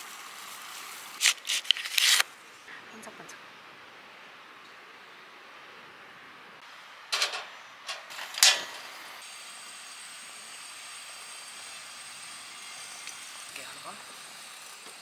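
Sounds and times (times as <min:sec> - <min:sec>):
grill hissing: 0:00.0 - 0:02.4, 0:06.6 - 0:15.0.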